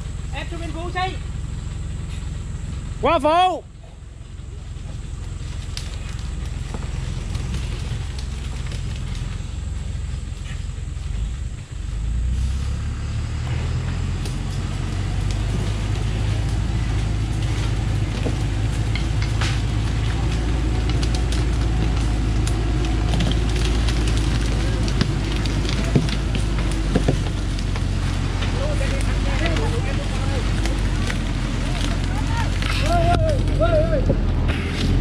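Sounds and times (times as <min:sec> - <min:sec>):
truck diesel engine under load: 0:00.0 - 0:35.0
sticks snapping under tyres: 0:05.2 - 0:09.4, 0:14.1 - 0:33.6.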